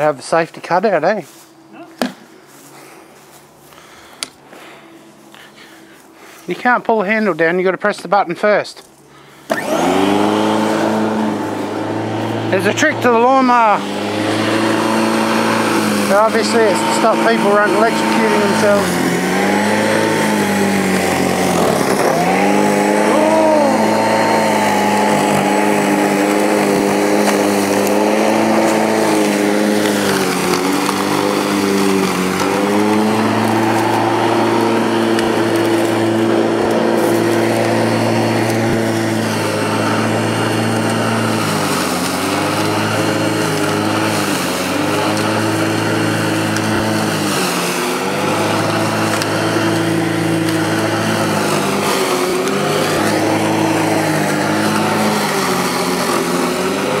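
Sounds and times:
electric lawn mower cutting grass: 0.0s - 1.5s, 2.5s - 7.7s, 8.9s - 57.0s.

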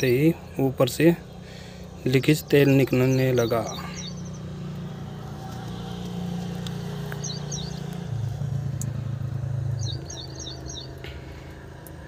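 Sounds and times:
vehicle engine running: 0.0s - 12.0s
bird chirps: 2.0s - 4.6s, 7.1s - 8.1s, 9.7s - 11.0s.

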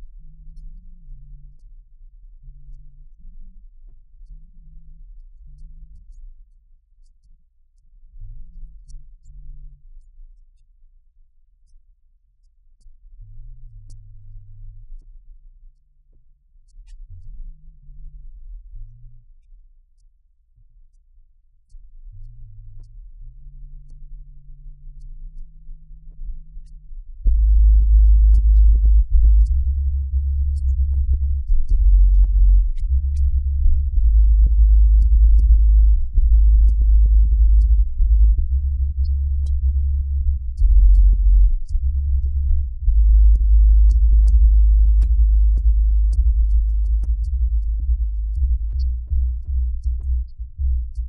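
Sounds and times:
electronic music with heavy bass: 27.3s - 51.0s.

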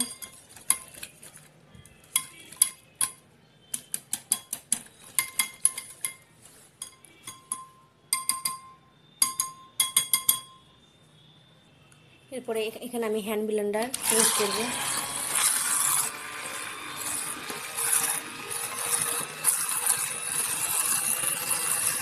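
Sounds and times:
glass ringing: 5.2s - 10.8s.

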